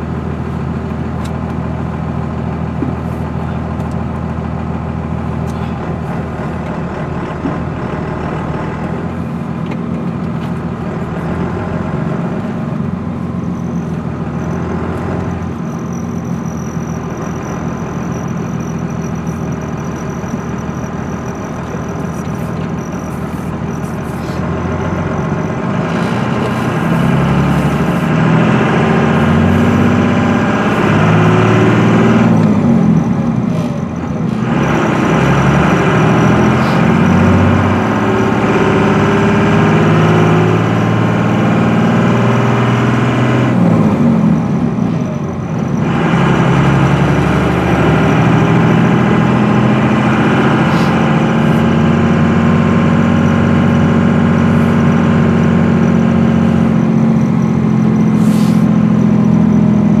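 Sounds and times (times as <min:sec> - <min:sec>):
diesel truck engine accelerating: 0:00.0 - 1:00.0.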